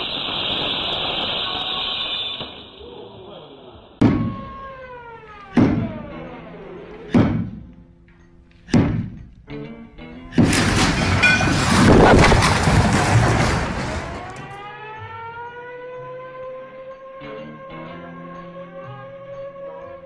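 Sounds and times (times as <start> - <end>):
wall collapsing crash and rumble: 10.2 - 14.6.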